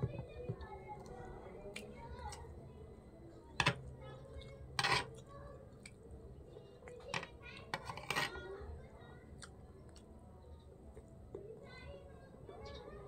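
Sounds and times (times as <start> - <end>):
metal spoon scraping plate: 4.8 - 5.2, 7.2 - 8.4.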